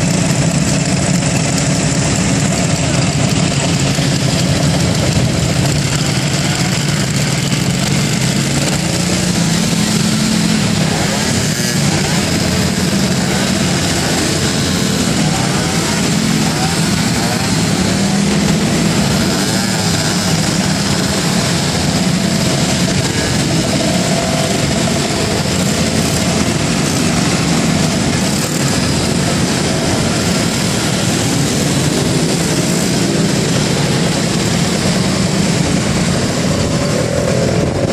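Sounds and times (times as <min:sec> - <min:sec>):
motor scooters accelerating: 0:00.0 - 0:37.9.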